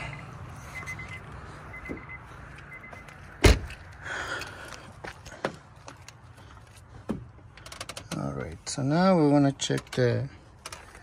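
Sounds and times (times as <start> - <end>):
car door warning chime beeping: 0.7 - 3.1
car door slamming shut: 3.4 - 3.8.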